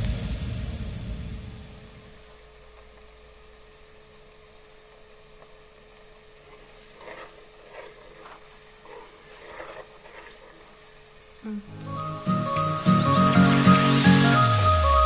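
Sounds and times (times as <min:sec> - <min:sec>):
onions frying with faint sizzle: 0:00.0 - 0:07.6, 0:10.7 - 0:15.0
ladle scraping metal pot: 0:06.6 - 0:10.8.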